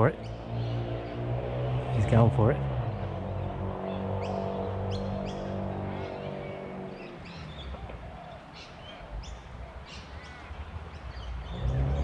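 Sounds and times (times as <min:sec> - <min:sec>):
birds high descending calls: 0:02.8 - 0:12.0.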